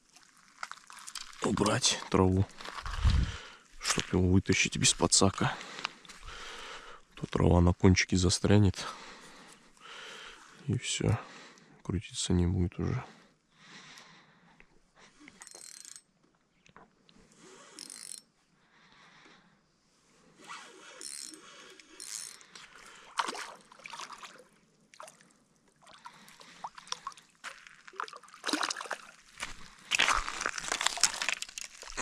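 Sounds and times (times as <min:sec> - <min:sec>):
fish splashing in shallow water: 0:00.0 - 0:01.5, 0:22.7 - 0:32.0
fishing line scrapes and rustles: 0:00.0 - 0:04.2.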